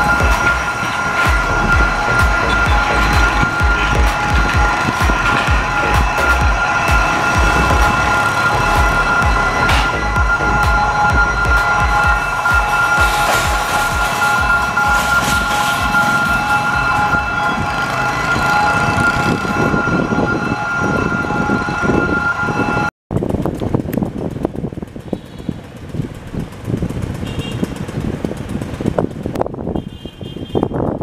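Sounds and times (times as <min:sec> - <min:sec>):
brief high tones: 0:00.0 - 0:22.9
level crossing alarm: 0:00.0 - 0:22.9
diesel locomotive rumble: 0:00.0 - 0:31.0
motorbike traffic: 0:00.0 - 0:31.0.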